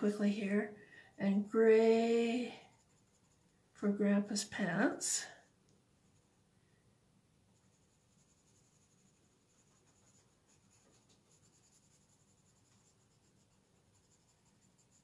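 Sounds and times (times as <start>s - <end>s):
pencil scratching on paper: 1.8s - 3.6s, 7.6s - 15.0s.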